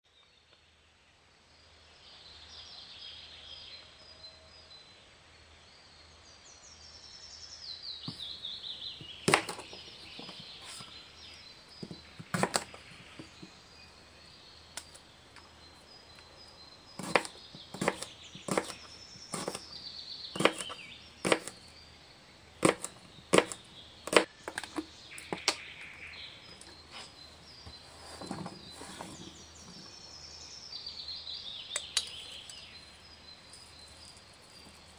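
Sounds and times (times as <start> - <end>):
birds chirping: 6.6 - 34.9
knife chopping on cutting board: 9.2 - 10.8, 11.8 - 13.4, 17.0 - 19.7, 20.4 - 21.6, 22.6 - 24.3.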